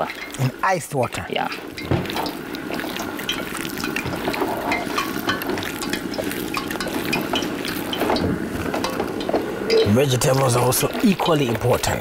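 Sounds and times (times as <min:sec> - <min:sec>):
water boiling with pops: 0:00.0 - 0:12.0.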